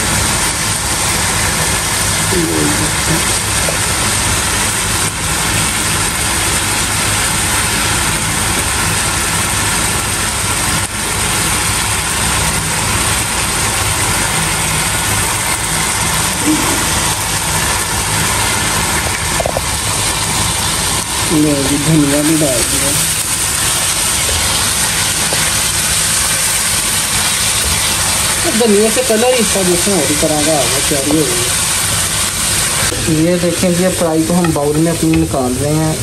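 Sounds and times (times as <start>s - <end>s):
faint voice: 2.3s - 3.8s, 16.4s - 17.0s.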